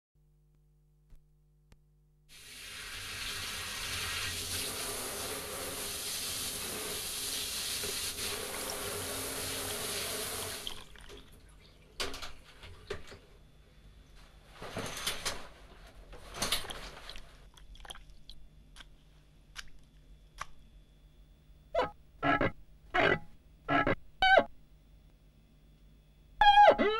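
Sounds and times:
water running: 0:02.3 - 0:12.0.

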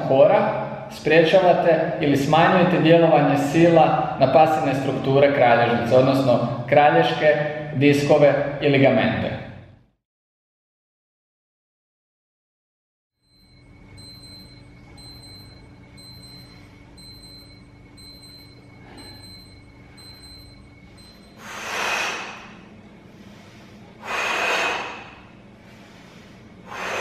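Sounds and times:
faint high ticking chime: 0:13.2 - 0:21.4
low hum: 0:13.2 - 0:27.0
man exhaling hard: 0:21.4 - 0:22.6, 0:24.0 - 0:25.3.

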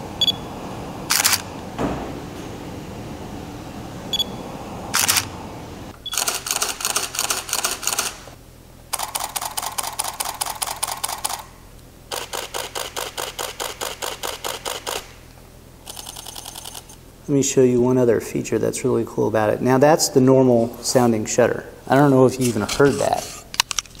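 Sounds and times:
camera shutter clicks: 0:01.1 - 0:01.5, 0:05.0 - 0:05.3, 0:06.1 - 0:08.2, 0:08.9 - 0:11.4, 0:12.1 - 0:15.1
rapid camera shutter bursts: 0:01.1 - 0:01.5, 0:05.0 - 0:05.3, 0:06.1 - 0:08.3, 0:08.9 - 0:11.5, 0:12.1 - 0:15.2, 0:15.8 - 0:17.0.

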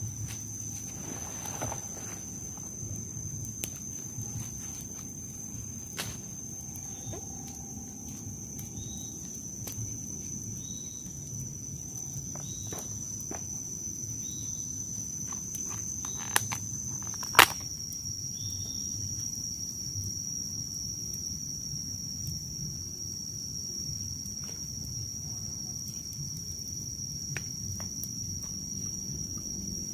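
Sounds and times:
high-pitched insect drone: 0:00.0 - 0:17.6
plastic containers rustling and clicking: 0:15.3 - 0:17.6
loud plastic snap: 0:17.2 - 0:17.6.

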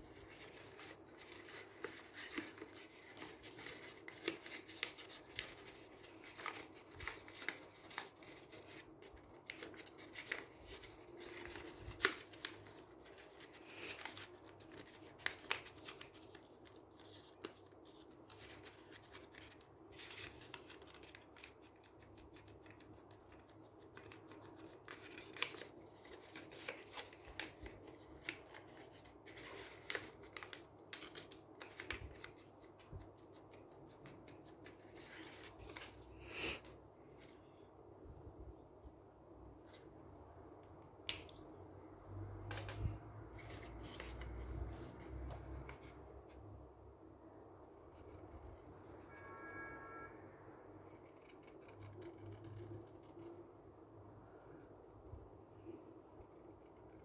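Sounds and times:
paper folding and crinkling: 0:00.0 - 0:36.0, 0:42.6 - 0:46.0.

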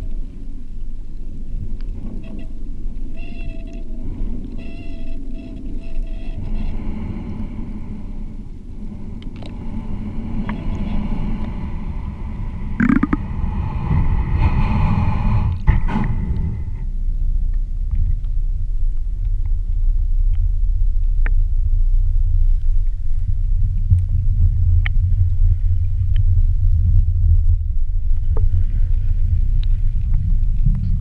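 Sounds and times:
faint whine: 0:00.0 - 0:31.0
underwater rumble of moving water: 0:00.0 - 0:31.0.

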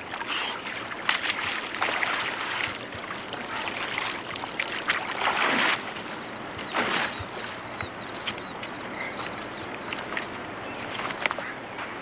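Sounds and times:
creek water splashing: 0:00.0 - 0:11.6
faint bird chirps: 0:06.0 - 0:11.6.

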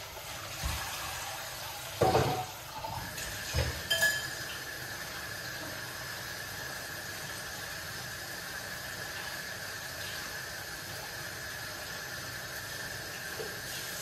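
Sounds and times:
vegetables frying in a saucepan: 0:00.0 - 0:14.0
kitchenware knocks and clinks: 0:02.0 - 0:02.6, 0:03.5 - 0:04.5.

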